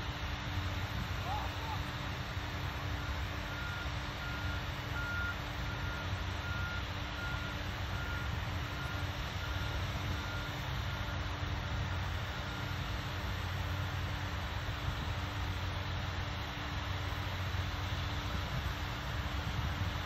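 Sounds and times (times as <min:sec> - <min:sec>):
low rumble and hum: 0:00.0 - 0:20.0
reversing alarm beeping: 0:02.6 - 0:13.9.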